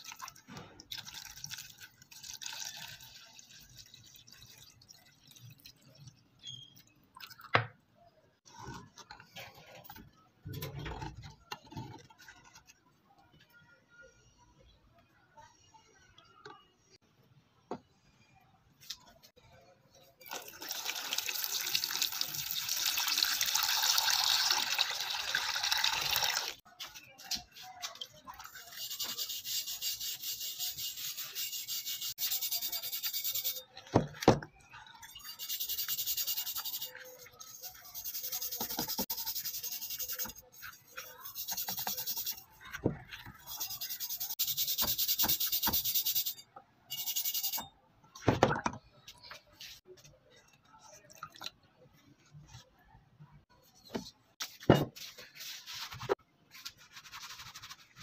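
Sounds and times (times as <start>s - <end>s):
water pouring into plastic tub: 0.0s - 6.1s, 20.3s - 26.6s
stiff brush scrubbing metal: 28.5s - 33.6s.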